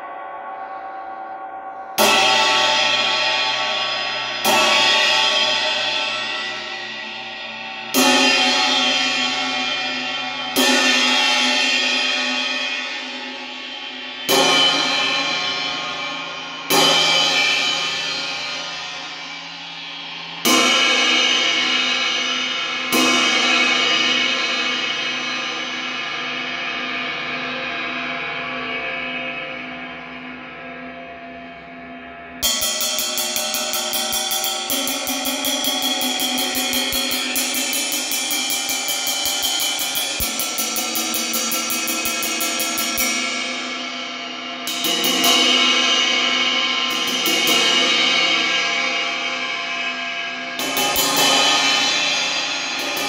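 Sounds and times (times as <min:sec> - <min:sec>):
ride cymbal struck with drumstick: 0:32.4 - 0:53.0.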